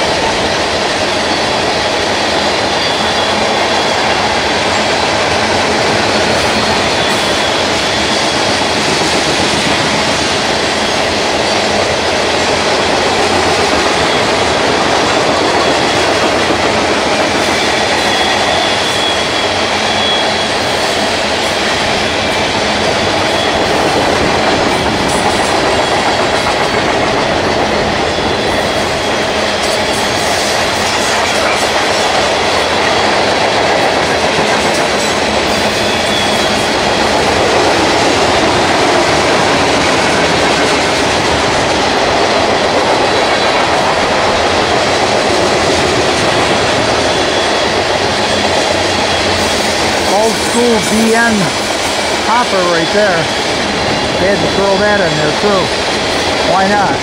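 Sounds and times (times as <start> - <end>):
train wheels clicking over rail joints: 0.0 - 52.6
freight train rumble: 0.0 - 57.0
high wheel squeals: 1.1 - 5.2, 6.1 - 9.0, 17.0 - 24.1, 35.5 - 37.4, 46.5 - 56.3.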